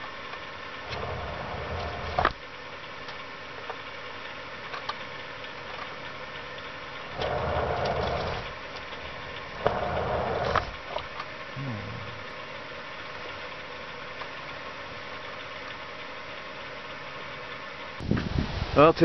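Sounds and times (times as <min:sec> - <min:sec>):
steady low hum: 0:00.0 - 0:18.8
wheel scraping inside wooden box: 0:00.9 - 0:02.4, 0:07.2 - 0:08.5, 0:09.6 - 0:10.8.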